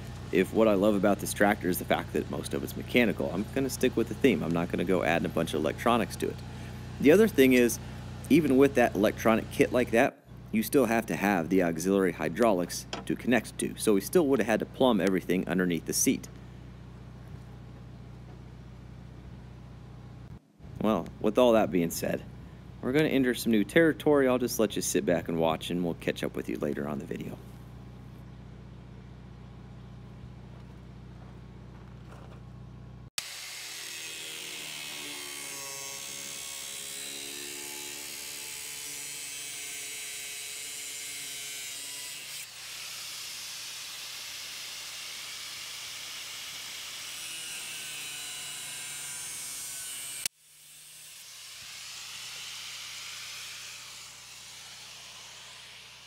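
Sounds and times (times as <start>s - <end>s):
low hum: 27.3s - 33.1s
power tool whining on metal: 33.2s - 56.0s.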